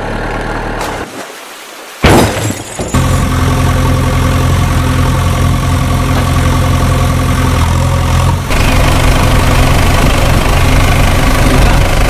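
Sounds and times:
diesel engine idling: 0:03.0 - 0:12.0.

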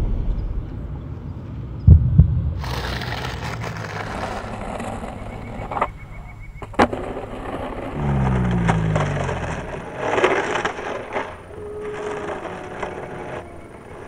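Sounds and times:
skateboard wheels on rough asphalt: 0:02.5 - 0:14.0
low hum falling in pitch: 0:07.9 - 0:09.9.

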